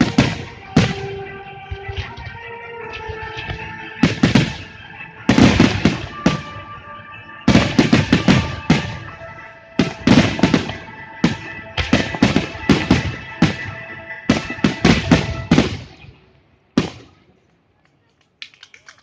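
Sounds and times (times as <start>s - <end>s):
music playing: 0.0s - 16.3s.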